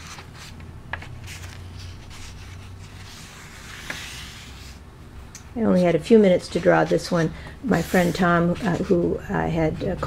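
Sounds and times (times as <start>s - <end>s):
paper pages rustling: 0.0s - 4.8s.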